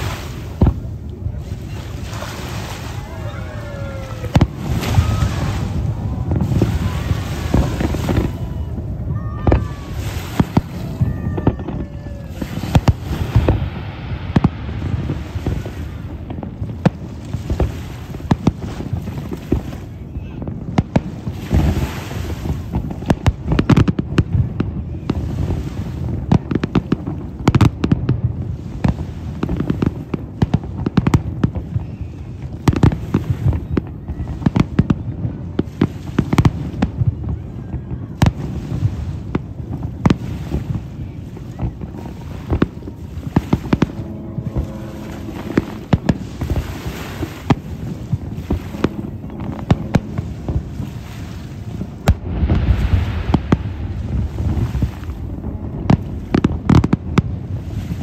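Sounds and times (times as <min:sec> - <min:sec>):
low rumble: 0:00.0 - 0:21.8, 0:37.4 - 0:58.0
fireworks bangs: 0:00.0 - 0:58.0.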